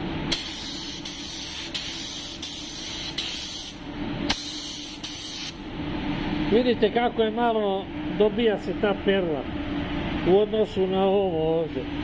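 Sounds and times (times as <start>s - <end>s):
steady low hum: 0.0s - 12.0s
paint spray gun hissing: 0.3s - 5.6s.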